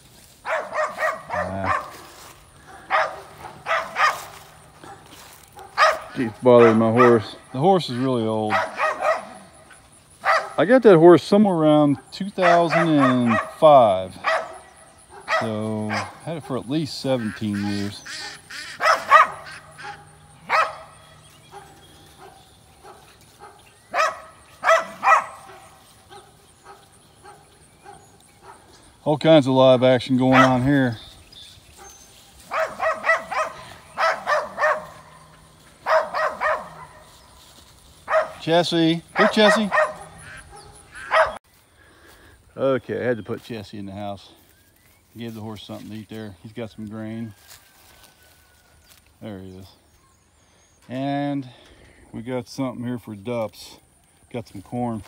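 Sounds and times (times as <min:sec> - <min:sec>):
dog barking: 0:00.4 - 0:07.4, 0:08.5 - 0:10.6, 0:11.9 - 0:13.6, 0:14.2 - 0:16.6, 0:17.7 - 0:28.7, 0:30.3 - 0:30.7, 0:31.8 - 0:37.1, 0:38.0 - 0:38.5, 0:39.1 - 0:41.4.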